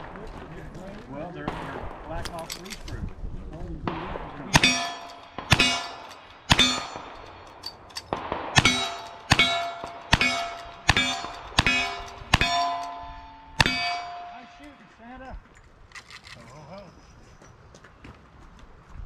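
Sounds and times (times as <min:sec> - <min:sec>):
rifle shots: 0:03.9 - 0:14.8
steel target ringing: 0:04.5 - 0:14.9.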